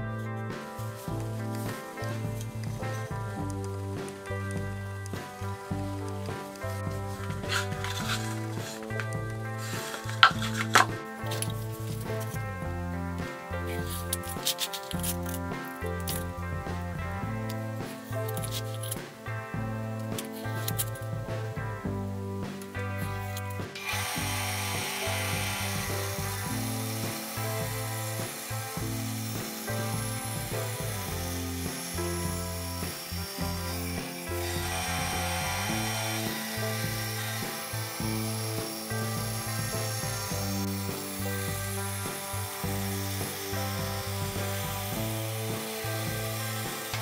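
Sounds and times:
background music: 0:00.0 - 0:47.0
power saw cutting plywood: 0:00.7 - 0:12.4, 0:23.1 - 0:47.0.

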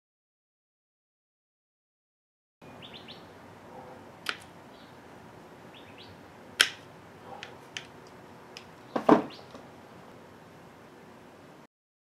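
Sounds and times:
metal snips cutting wire: 0:04.2 - 0:04.6, 0:06.6 - 0:08.7.

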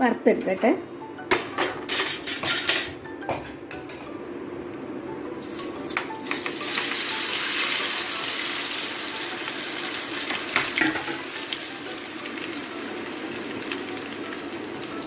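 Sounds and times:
frying in hot oil: 0:05.4 - 0:15.0.

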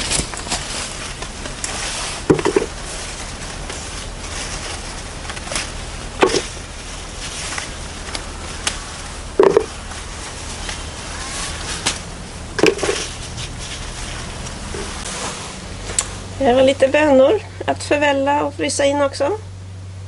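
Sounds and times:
leaves rustling: 0:00.0 - 0:17.6
pods knocking into plastic tub: 0:02.3 - 0:02.7, 0:06.2 - 0:06.5, 0:09.4 - 0:09.7.

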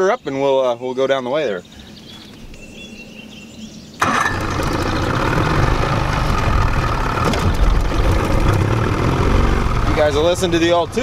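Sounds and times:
outboard motor starting and running: 0:04.0 - 0:11.0.

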